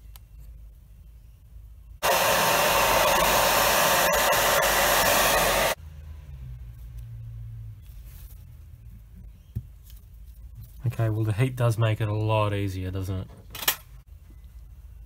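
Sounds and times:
hair dryer blowing: 2.0 - 5.8.

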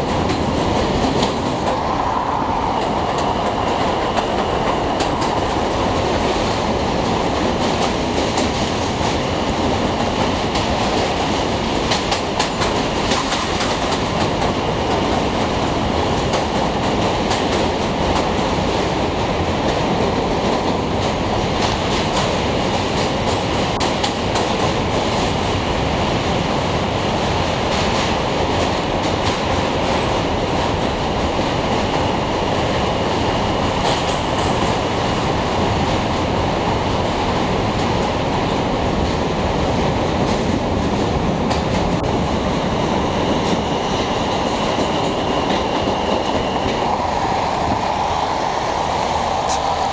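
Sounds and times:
train wheels rumbling on rails: 0.0 - 49.9
clacks over rail joints: 7.0 - 18.9, 19.7 - 25.4.

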